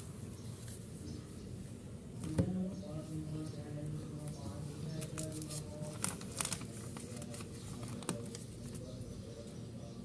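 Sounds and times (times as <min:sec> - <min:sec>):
paper rustling and crinkling: 0:05.0 - 0:08.8
sharp paper crackles: 0:05.0 - 0:08.8.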